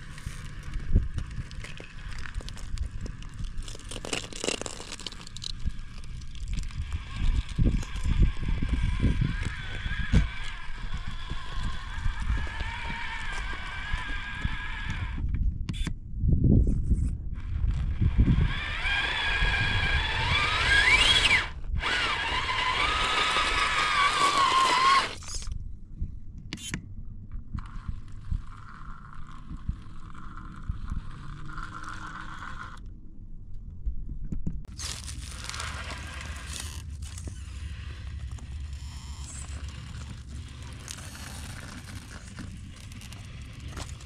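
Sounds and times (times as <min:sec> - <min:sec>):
tyres crunching over rock: 0:00.0 - 0:15.0, 0:17.6 - 0:25.5, 0:34.7 - 0:44.0
electric motor whining: 0:05.6 - 0:15.3, 0:17.4 - 0:25.5, 0:34.8 - 0:44.0.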